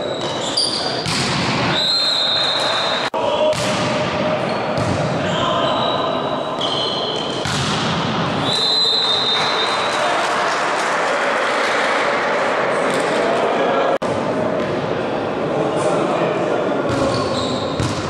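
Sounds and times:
ball and court noise: 0.0 - 18.0
crowd and player voices: 0.0 - 18.0
high whistle tones: 1.7 - 3.1, 5.2 - 7.3, 8.4 - 9.8.

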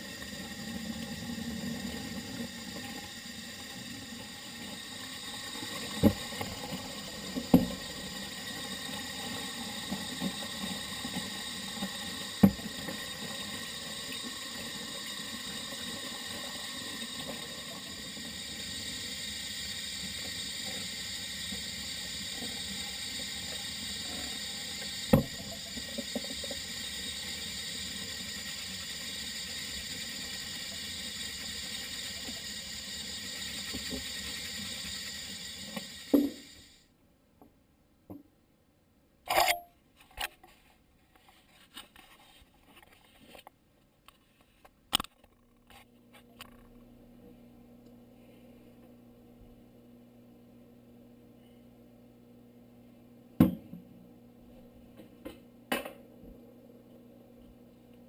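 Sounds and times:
tap water running into sink: 0.0 - 36.8.

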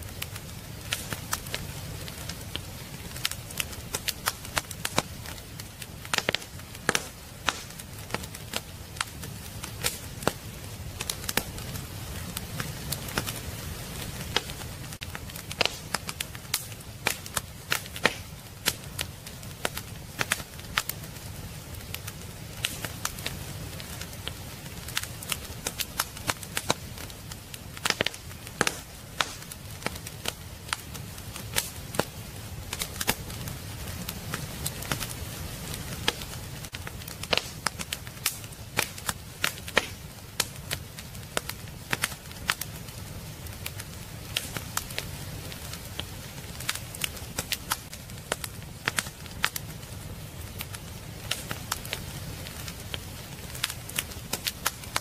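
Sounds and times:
fire pops and snaps: 0.0 - 55.0
low rumble of flames: 0.0 - 55.0
wood fire crackling: 0.0 - 55.0.

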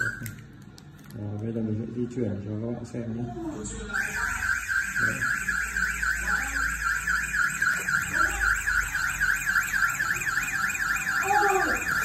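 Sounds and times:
warbling alarm siren: 0.0 - 0.2, 3.9 - 12.0.

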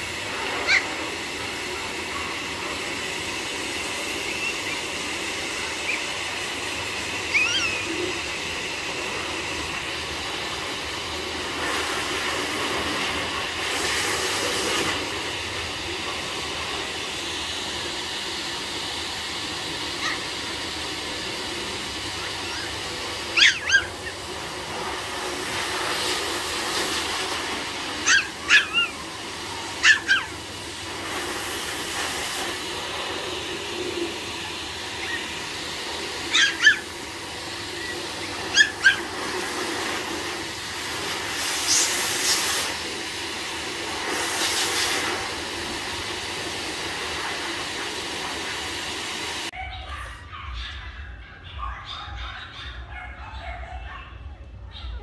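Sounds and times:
puppies yipping: 0.4 - 1.2, 4.0 - 8.4, 19.9 - 20.5, 22.1 - 25.8, 27.9 - 30.4, 34.4 - 40.0, 49.5 - 55.0.

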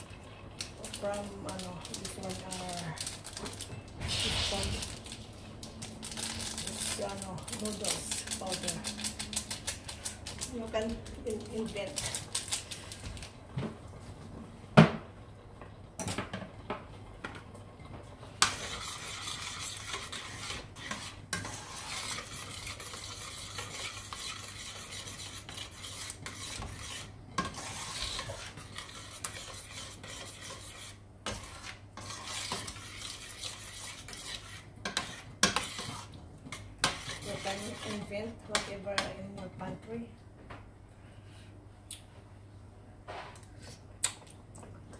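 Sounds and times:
spoon scraping metal pot: 18.4 - 39.1.

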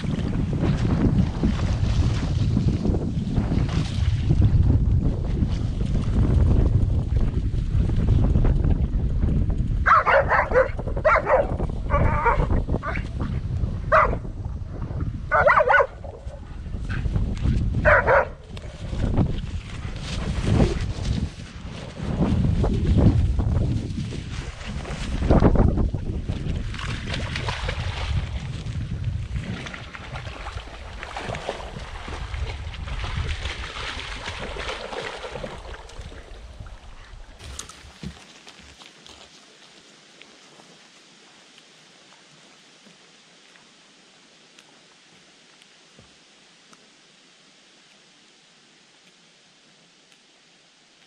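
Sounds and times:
wind buffeting microphone: 0.0 - 38.1
dog barking: 9.8 - 13.0, 13.9 - 14.2, 15.3 - 16.0, 17.8 - 18.4.

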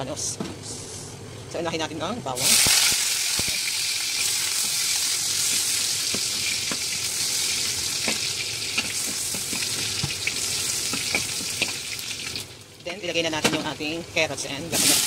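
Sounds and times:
garlic sizzling in hot oil: 2.4 - 12.9, 14.7 - 15.0
spatula tapping pan: 8.0 - 11.8.

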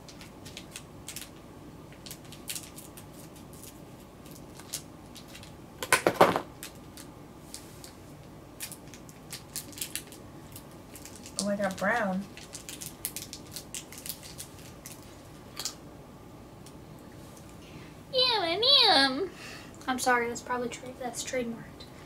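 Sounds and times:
plastic wrapper crinkling: 0.0 - 5.6, 6.6 - 8.0, 8.6 - 15.8.

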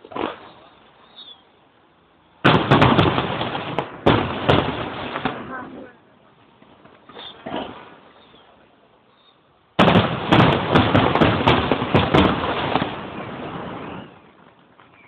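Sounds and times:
fireworks bangs and crackling: 2.4 - 6.0, 9.8 - 15.0.

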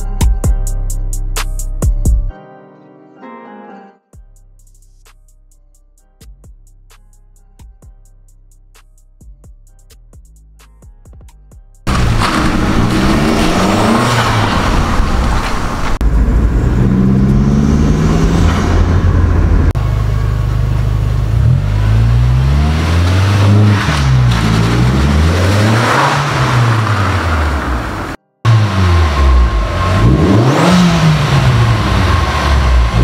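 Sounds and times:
car engine revving: 11.9 - 33.0.

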